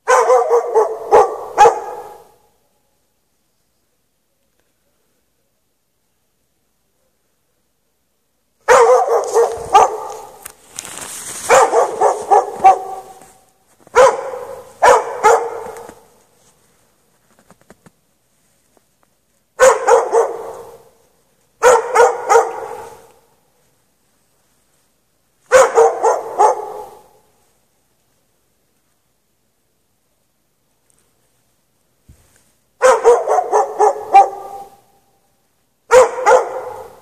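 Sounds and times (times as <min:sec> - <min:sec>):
dog barking: 0:00.0 - 0:02.8, 0:08.6 - 0:10.4, 0:11.5 - 0:16.2, 0:19.6 - 0:21.0, 0:21.6 - 0:23.3, 0:25.5 - 0:27.3, 0:32.8 - 0:35.0, 0:35.9 - 0:37.0.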